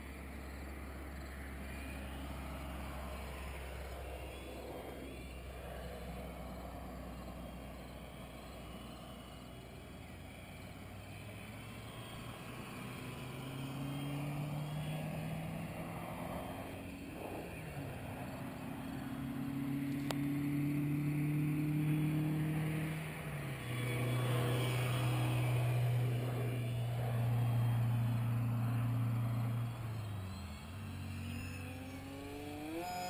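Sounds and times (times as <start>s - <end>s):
motor drone: 0.0s - 33.0s
wind rumbling on microphone: 15.7s - 19.1s.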